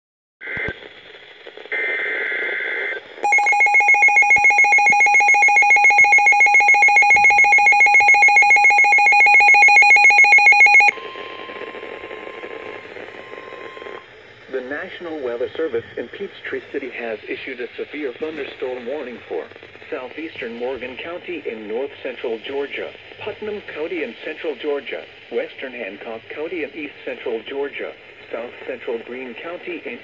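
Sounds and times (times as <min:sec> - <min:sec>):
radio static: 0:00.4 - 0:30.0
rapidly pulsing electronic alarm: 0:03.2 - 0:15.4
steady warning tone: 0:03.2 - 0:22.8.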